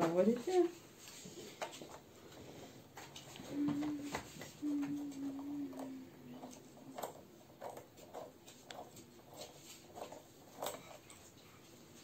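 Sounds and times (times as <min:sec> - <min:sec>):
soft rustling: 0:00.0 - 0:12.0.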